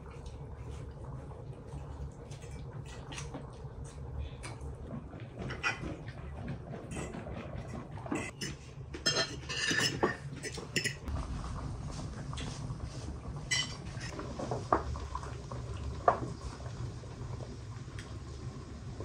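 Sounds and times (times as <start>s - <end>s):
cutlery clinking on plates: 8.2s - 11.0s
glass jars clinking: 8.2s - 11.0s
steady low rumble: 11.0s - 13.5s.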